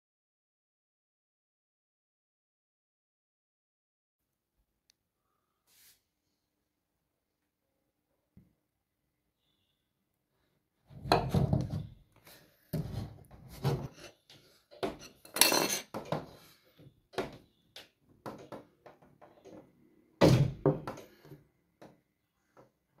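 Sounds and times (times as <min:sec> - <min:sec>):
door thunks and knocks: 0:20.2 - 0:21.0.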